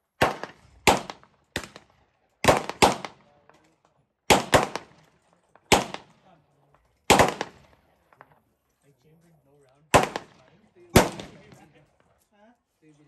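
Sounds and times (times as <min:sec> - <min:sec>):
gunshots with echo: 0:00.2 - 0:03.4, 0:04.3 - 0:06.3, 0:07.1 - 0:07.8, 0:09.9 - 0:11.7.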